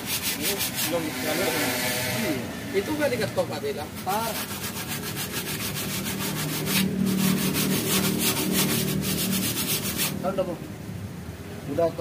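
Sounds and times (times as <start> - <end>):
sandpaper rubbing on metal: 0.0 - 1.8, 3.6 - 10.2.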